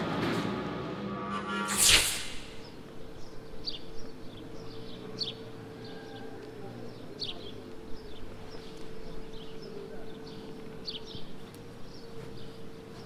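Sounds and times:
loud whoosh: 1.1 - 2.8
faint outdoor hum: 1.7 - 13.0
small birds chirping: 2.1 - 13.0.

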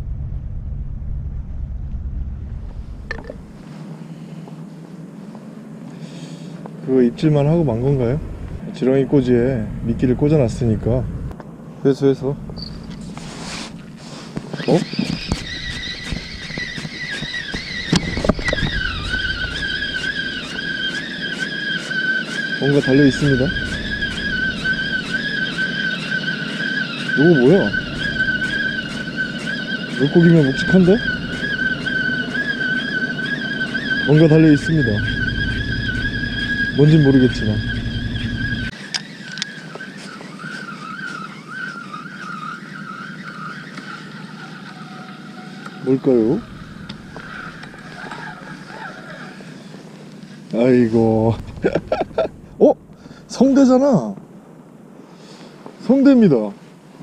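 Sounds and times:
wind rumbling on microphone: 0.0 - 3.7, 7.2 - 11.4, 14.8 - 20.6, 50.9 - 53.5
fishing reel gears whining: 6.9 - 11.3, 12.2 - 53.9.

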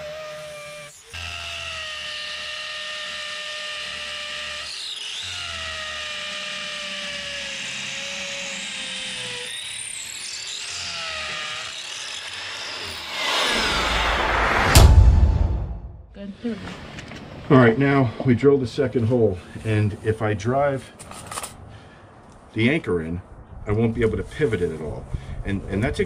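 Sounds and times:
power drill boring into concrete: 0.0 - 14.0.

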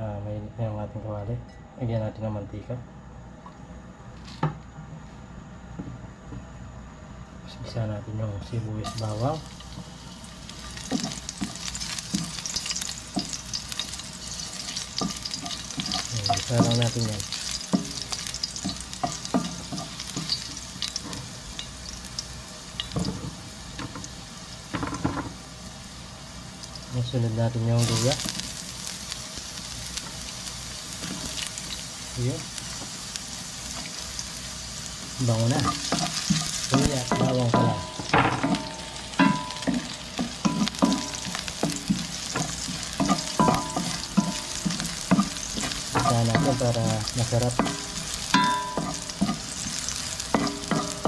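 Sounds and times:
onion and garlic sizzling in oil: 8.4 - 51.0
utensil knocking and scraping pan: 35.6 - 51.0
spatula clinking against wok: 37.0 - 46.6, 47.6 - 49.5.

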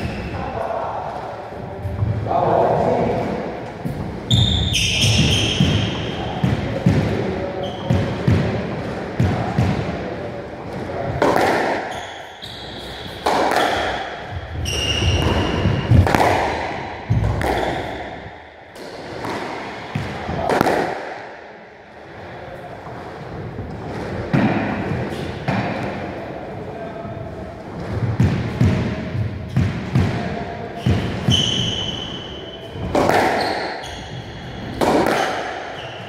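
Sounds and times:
squash ball smacks: 11.1 - 11.9, 13.1 - 21.4, 32.8 - 33.9, 34.6 - 35.8
shoes squeaking on wooden floor: 14.3 - 16.1, 30.8 - 34.6.

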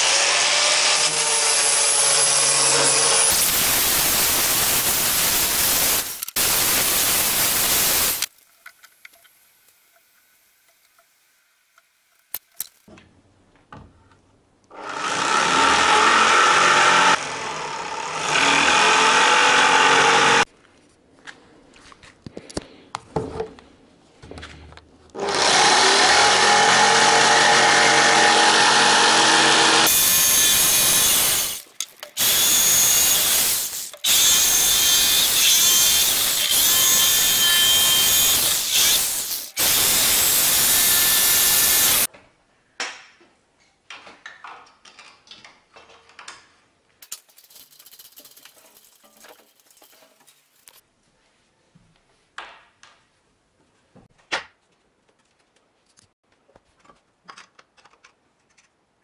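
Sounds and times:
jigsaw cutting wood: 0.0 - 8.3, 14.7 - 20.5, 25.2 - 42.1.

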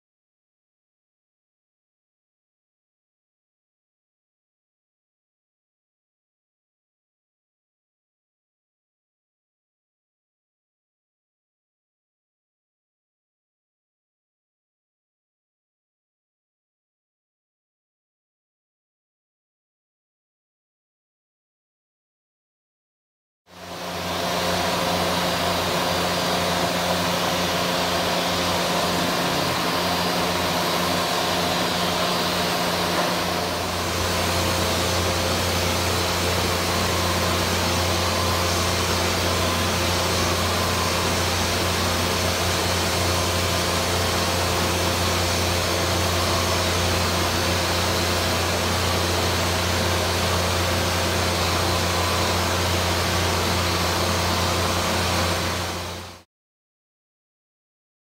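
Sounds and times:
paint sprayer motor hum: 23.6 - 56.2.

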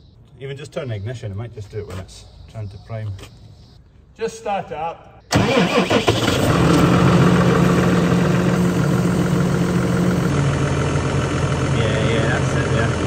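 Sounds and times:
tractor diesel engine starting: 5.3 - 13.0.

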